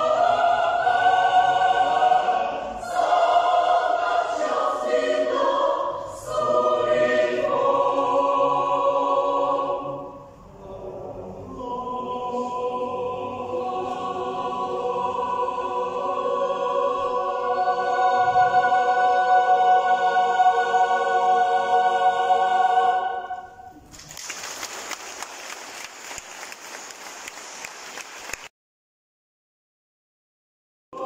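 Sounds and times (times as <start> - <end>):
mixed choir singing: 0.0 - 23.8.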